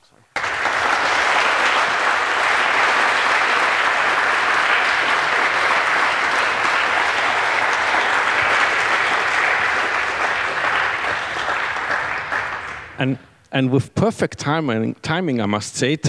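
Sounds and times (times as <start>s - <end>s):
crowd applauding: 0.4s - 13.2s.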